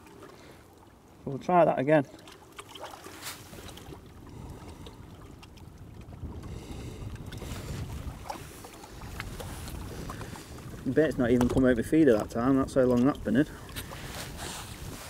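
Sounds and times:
wind rumble on microphone: 3.6 - 15.0.

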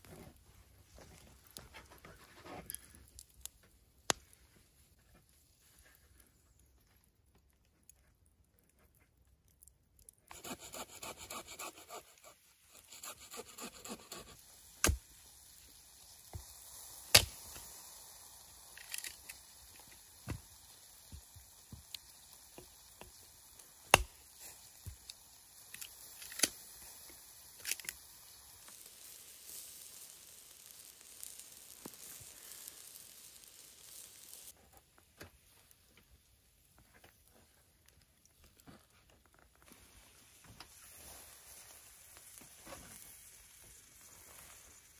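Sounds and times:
knife scraping wood: 10.3 - 15.0.

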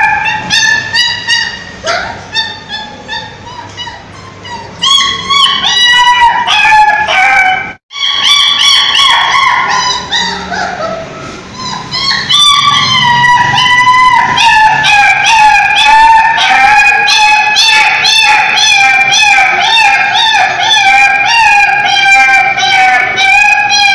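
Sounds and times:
puppy whining and whimpering: 0.0 - 7.0, 7.9 - 23.9.

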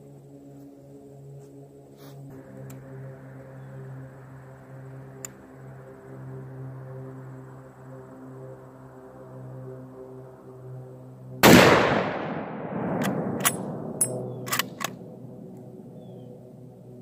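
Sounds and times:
rifle shot with echo: 11.4 - 14.9
rifle bolt clicking: 13.0 - 15.0.

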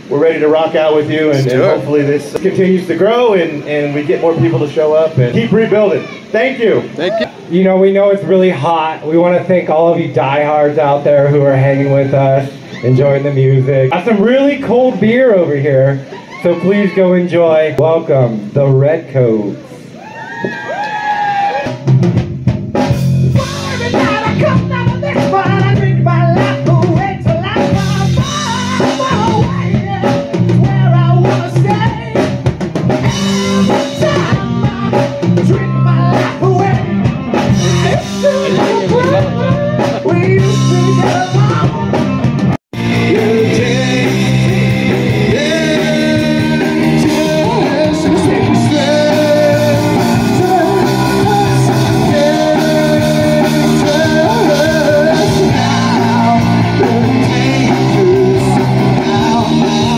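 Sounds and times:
man singing: 1.2 - 1.9, 23.4 - 32.3, 33.2 - 42.2, 42.8 - 59.9
live rock band playing: 21.4 - 59.9.

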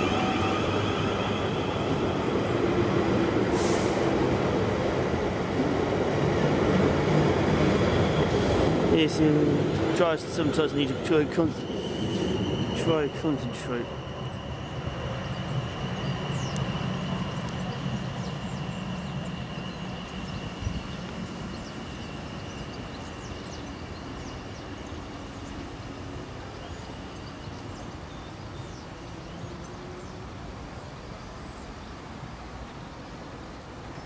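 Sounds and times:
electric train pulling away: 0.0 - 27.5
steady high whine: 10.7 - 24.4.

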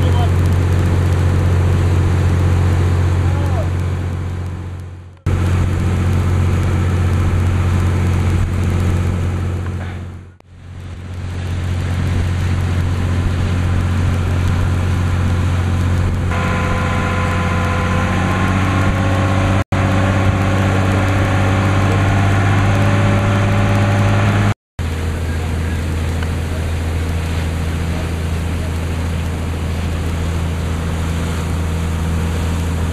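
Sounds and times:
boat engine humming: 0.0 - 32.9
high whining tone: 16.3 - 24.6.

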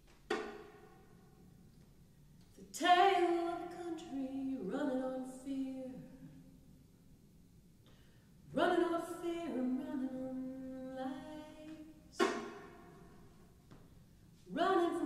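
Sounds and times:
woman singing with vibrato: 2.6 - 6.4, 8.5 - 12.5, 14.5 - 15.0
bowed violin: 12.2 - 12.7.

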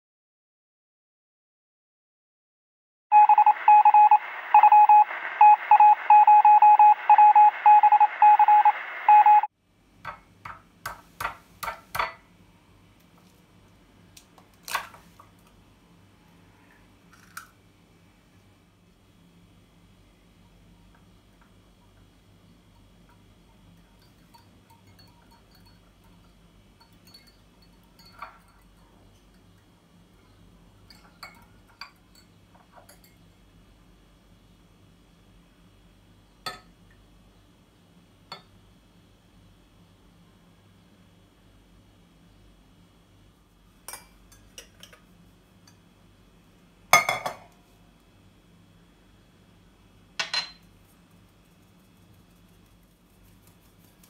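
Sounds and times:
kitchenware clatter: 10.0 - 12.2, 22.7 - 29.5, 30.8 - 33.2, 43.9 - 45.8, 47.0 - 47.6, 50.2 - 50.7
whisk clinking against glass: 24.0 - 29.4, 30.9 - 33.2.

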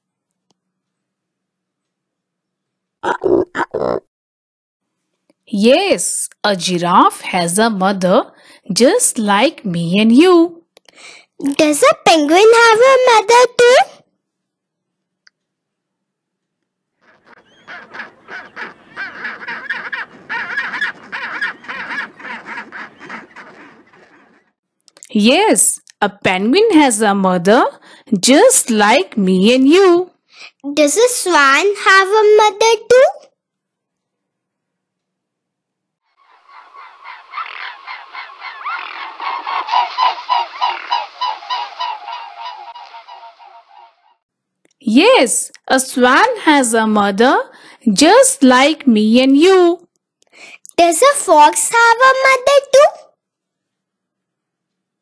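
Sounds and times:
penguins calling: 17.0 - 24.4, 36.2 - 44.1
swans honking: 17.0 - 24.5, 36.2 - 44.2.

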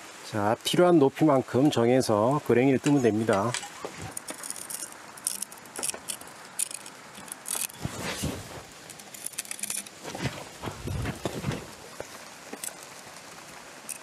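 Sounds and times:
metal scriber scratching wood: 3.4 - 8.3, 8.9 - 10.0.

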